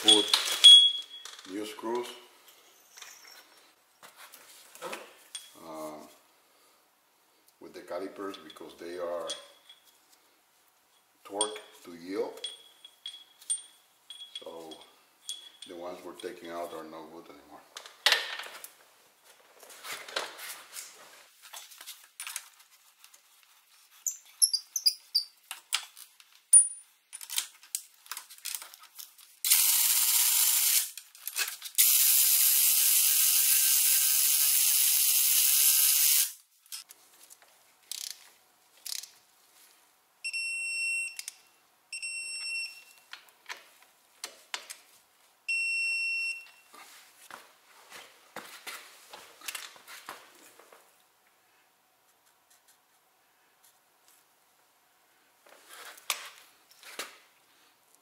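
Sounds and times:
metal tools clinking: 0.0s - 1.7s, 2.4s - 3.7s, 5.3s - 5.6s, 8.2s - 10.0s, 11.0s - 16.9s.

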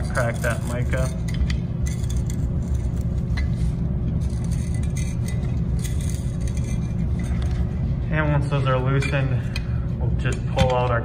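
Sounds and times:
low machinery hum: 0.0s - 11.0s.

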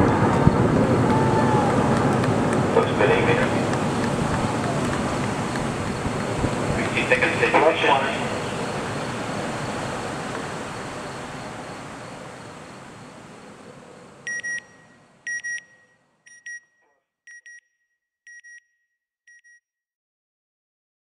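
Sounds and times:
rocket rumble: 0.0s - 14.2s
electronic double beeps: 14.3s - 16.6s.

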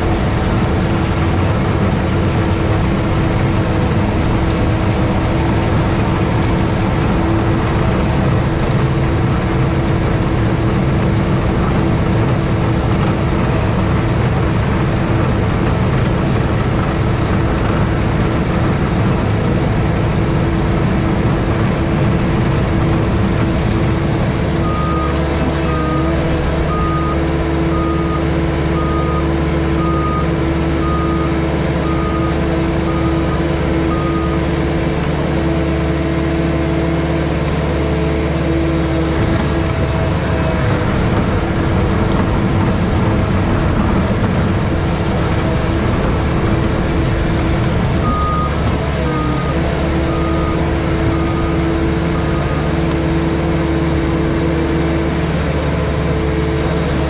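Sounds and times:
diesel engine and hydraulics: 0.0s - 57.0s
road planer grinding surface: 0.0s - 57.0s
reversing alarm beeping: 48.0s - 52.8s.

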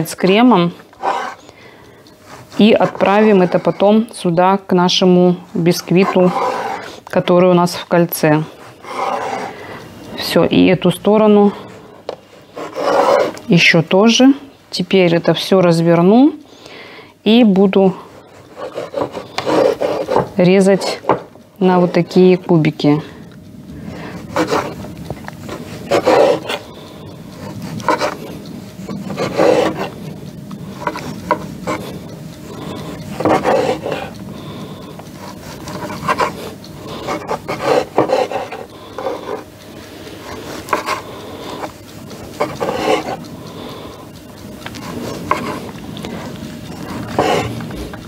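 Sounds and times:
knife sawing through cake: 0.3s - 1.5s, 2.2s - 4.1s, 5.5s - 9.7s, 12.4s - 13.4s, 17.8s - 21.2s, 24.1s - 24.8s, 25.4s - 30.1s, 30.7s - 34.2s, 34.8s - 39.5s, 40.2s - 48.0s.

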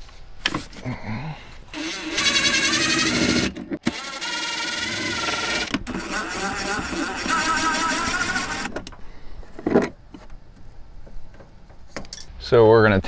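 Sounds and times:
cordless drill whining: 1.7s - 8.9s.

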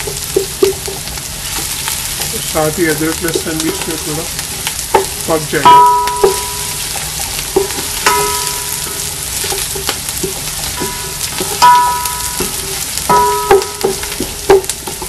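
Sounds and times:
onions sizzling in oil: 0.0s - 15.0s
spatula knocking metal pot: 4.9s - 6.7s, 7.6s - 15.0s.

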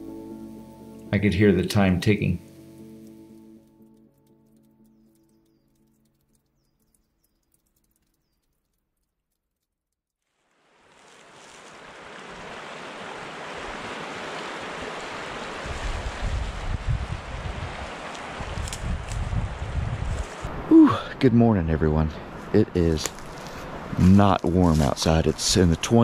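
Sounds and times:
faint music: 0.0s - 6.3s
strong blustery wind: 12.4s - 26.0s
wind buffeting microphone: 14.7s - 20.8s.

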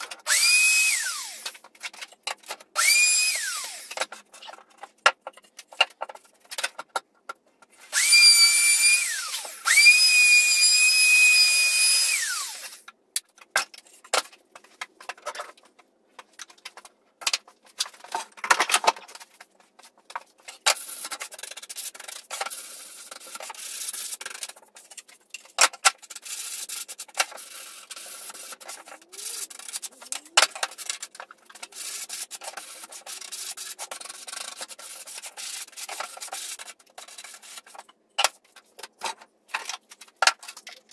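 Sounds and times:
cordless jigsaw whining: 0.2s - 1.5s, 2.8s - 4.0s, 7.9s - 12.8s.

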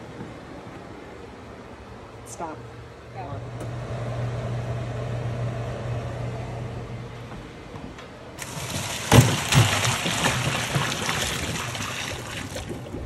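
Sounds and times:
water splashing into colander: 8.4s - 13.0s.

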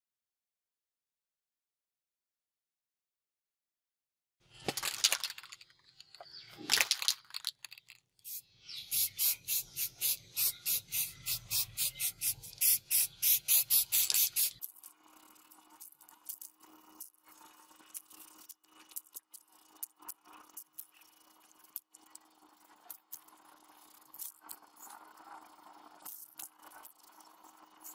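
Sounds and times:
spray can ball rattling: 4.6s - 27.9s
short hissing noises: 8.2s - 14.6s
spray paint hiss: 8.2s - 27.9s.

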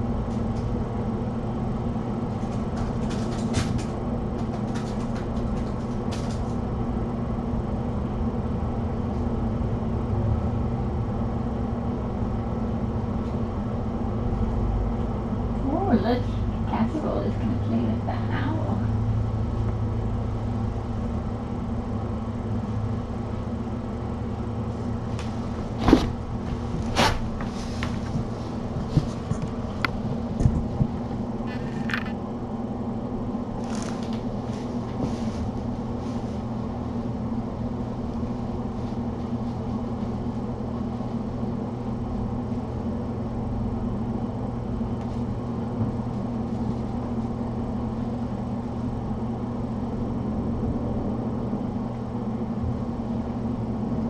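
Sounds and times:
low hum of room machinery: 0.0s - 54.0s
kittens playing clicks and rustles: 2.2s - 6.8s, 25.1s - 32.2s, 33.6s - 37.0s.

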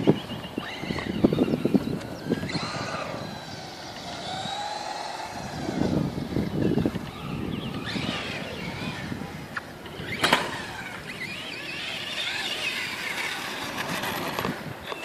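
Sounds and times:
electric motor whining: 0.0s - 15.0s.

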